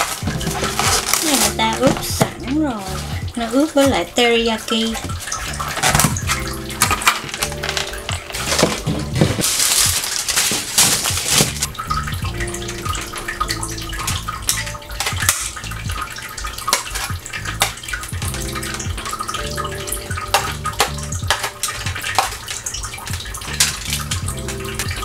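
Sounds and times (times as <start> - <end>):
wet chicken pieces handled: 0.0 - 4.0, 8.4 - 11.7
aluminium foil crinkling: 0.0 - 12.1, 14.0 - 25.0.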